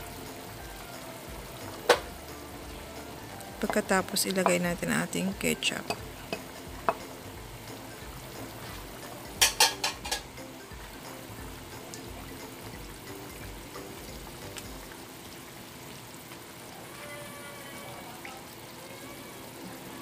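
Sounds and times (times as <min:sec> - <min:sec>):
sauce bubbling in frying pan: 0:00.0 - 0:20.0
wooden spatula stirring: 0:03.5 - 0:07.2.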